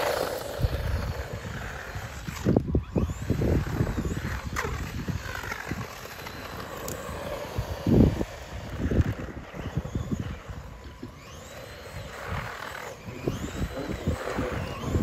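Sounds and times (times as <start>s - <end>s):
electric motors whining: 0.0s - 15.0s.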